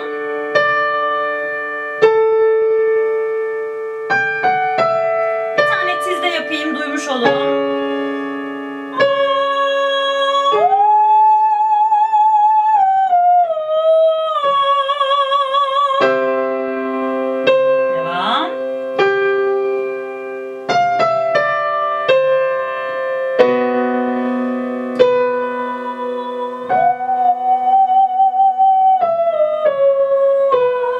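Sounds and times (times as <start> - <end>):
digital piano chords: 0.0 - 30.9
woman singing vocal exercise: 5.7 - 7.6, 8.9 - 16.3, 25.2 - 30.9.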